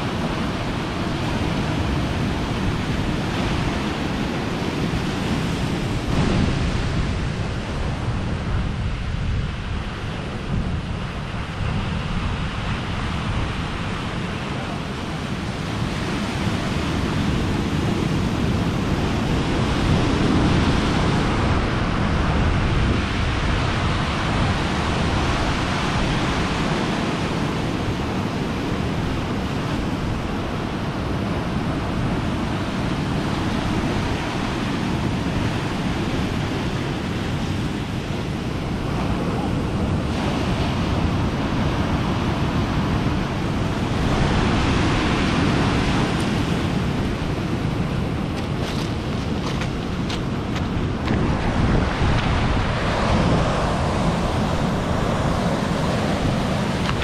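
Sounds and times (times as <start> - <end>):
wind on microphone: 0.0 - 57.0
waves breaking on pebbly shore: 11.4 - 57.0.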